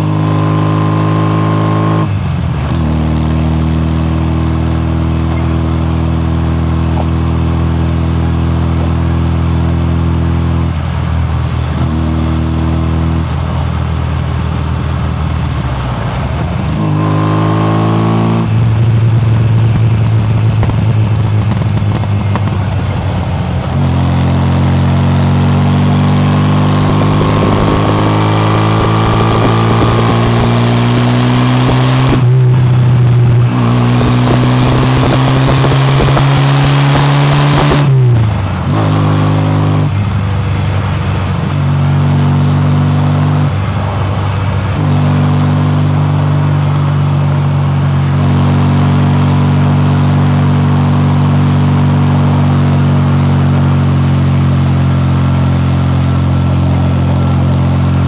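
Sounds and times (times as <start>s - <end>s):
car engine and exhaust: 0.0s - 58.0s.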